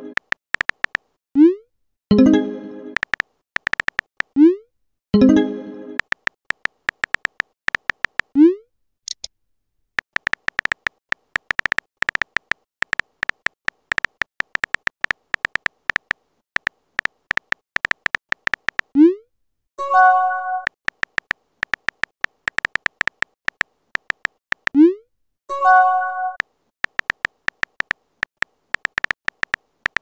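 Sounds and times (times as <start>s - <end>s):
phone keyboard typing clicks: 0.1s - 1.1s, 3.0s - 4.4s, 6.0s - 8.4s, 10.0s - 19.0s, 20.6s - 24.8s, 26.3s - 30.0s.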